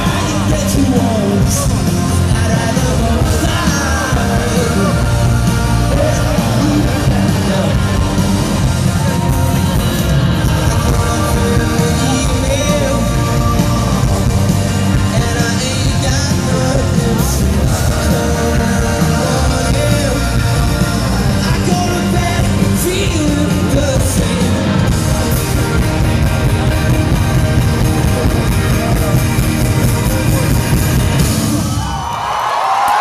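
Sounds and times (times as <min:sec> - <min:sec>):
person singing: 0:00.0 - 0:26.2
live rock band playing: 0:00.0 - 0:32.1.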